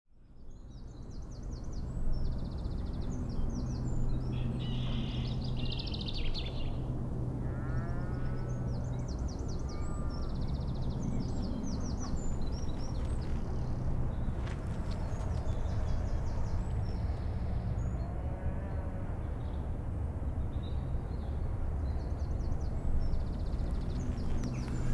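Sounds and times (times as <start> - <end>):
small birds chirping: 7.5 - 18.1, 21.9 - 24.9
steady low rumble: 19.1 - 24.9.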